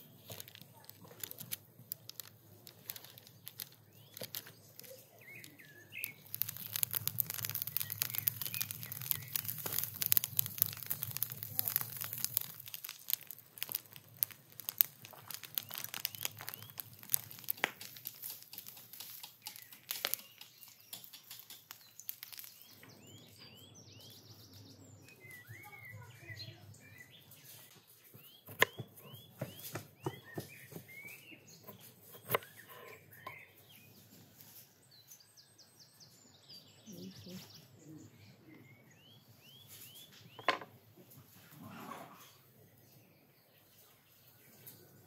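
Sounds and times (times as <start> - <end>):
burning straw crackling: 0.0 - 35.4, 36.0 - 41.6
small birds chirping: 0.0 - 45.0.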